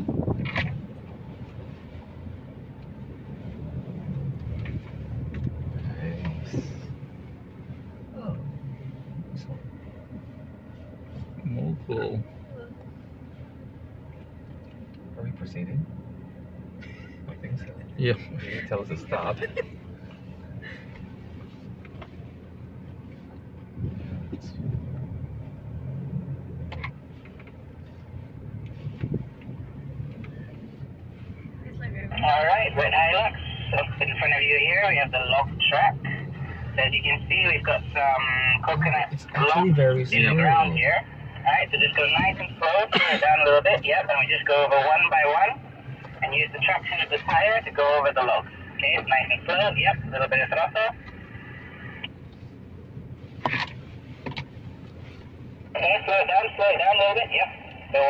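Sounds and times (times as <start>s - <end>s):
engine running low and steady: 0.0s - 58.0s
truck cab rumble: 0.0s - 58.0s.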